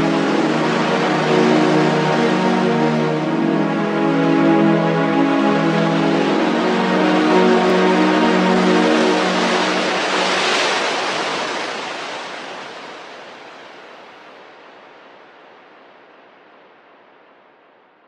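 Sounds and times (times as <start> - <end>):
background music held notes: 0.0 - 11.3
rushing surf-like noise: 0.0 - 17.7.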